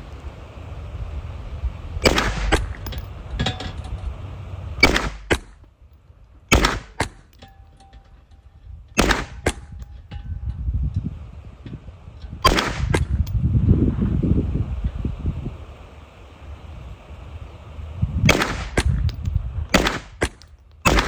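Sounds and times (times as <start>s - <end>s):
submachine gun shots: 2.0s - 2.8s, 4.8s - 5.6s, 6.5s - 7.3s, 9.0s - 9.7s, 12.5s - 13.0s, 18.3s - 19.0s, 19.7s - 21.0s
sharp crack: 2.0s - 3.0s, 4.8s - 5.7s, 6.5s - 7.5s, 9.0s - 9.8s, 12.4s - 13.3s, 18.2s - 21.0s.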